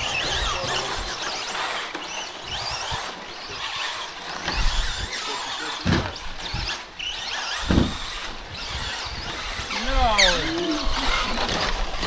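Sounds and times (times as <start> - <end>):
electric motors whining: 0.0 - 12.0.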